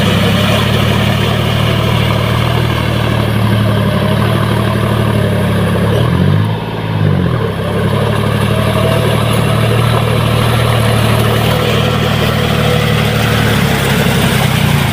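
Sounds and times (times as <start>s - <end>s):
tractor diesel engine under load: 0.0s - 14.9s.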